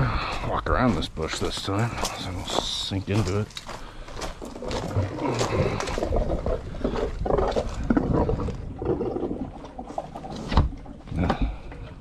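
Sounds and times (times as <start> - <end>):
footsteps on gravel: 0.0 - 7.9.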